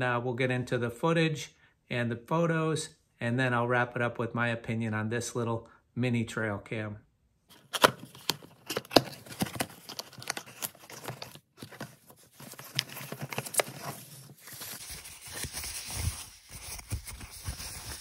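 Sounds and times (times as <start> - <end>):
tissue paper rustling: 7.5 - 18.0
cardboard flaps tapping and clicking: 7.8 - 14.1.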